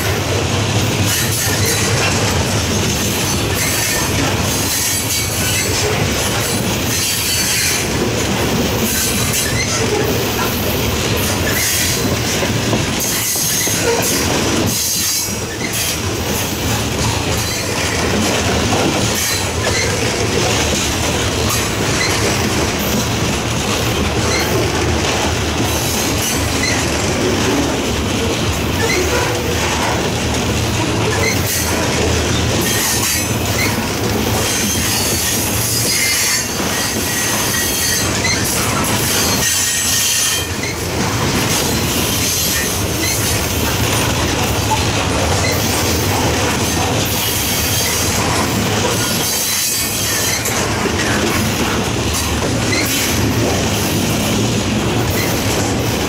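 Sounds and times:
train wheels rumbling on rails: 0.0 - 56.0
high wheel squeal: 34.5 - 40.9.

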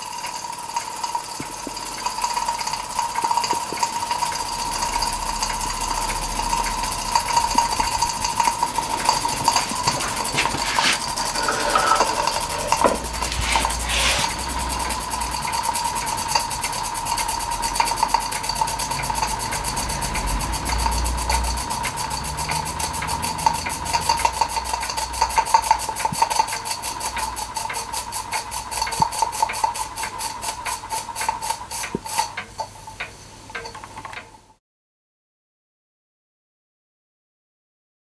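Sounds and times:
model steam engine chuffing: 0.0 - 32.4
steam hiss: 5.8 - 19.0, 27.8 - 32.6.

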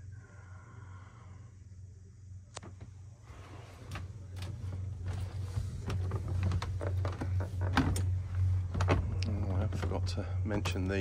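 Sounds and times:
steady low hum: 0.0 - 11.0
footsteps on boat deck: 3.8 - 10.9.

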